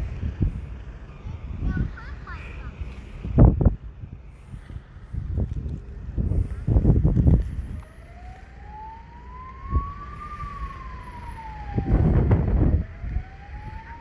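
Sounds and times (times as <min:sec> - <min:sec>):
low rumble on microphone: 0:02.6 - 0:14.0
siren wailing: 0:07.6 - 0:14.0.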